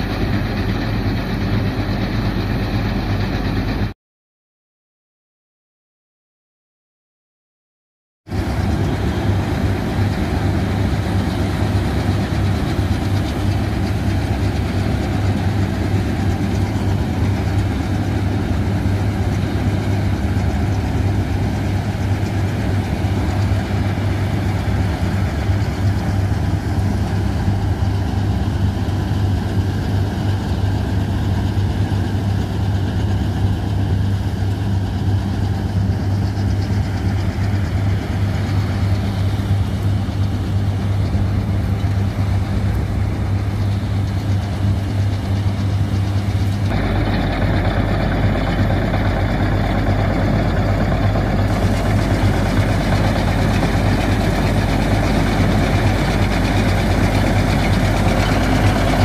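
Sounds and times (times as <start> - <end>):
machinery noise: 0.0 - 3.9, 8.3 - 59.0
combine harvester engine: 0.0 - 4.0, 8.3 - 59.0.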